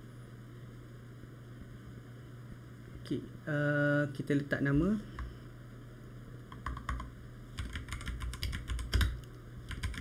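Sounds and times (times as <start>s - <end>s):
computer keyboard typing: 6.5s - 10.0s.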